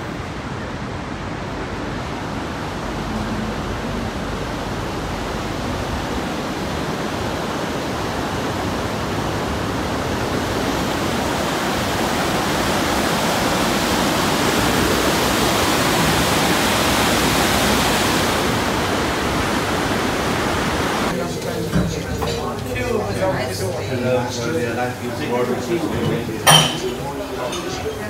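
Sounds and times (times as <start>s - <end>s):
river water rushing over rapids: 0.0s - 21.2s.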